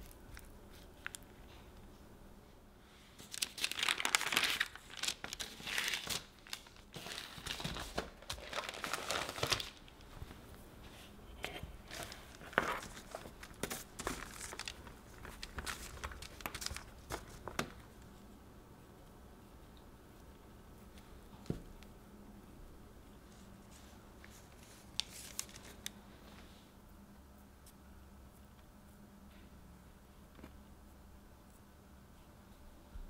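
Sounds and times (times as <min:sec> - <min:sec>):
parchment paper crinkling: 0:00.0 - 0:01.6, 0:03.2 - 0:10.6, 0:11.3 - 0:18.0, 0:23.3 - 0:26.3.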